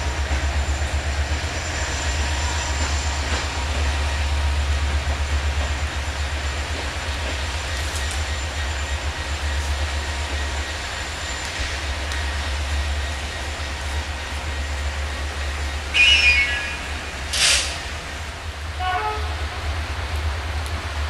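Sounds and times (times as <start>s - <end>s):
train engine idling: 0.0s - 21.0s
rain hissing: 15.8s - 21.0s.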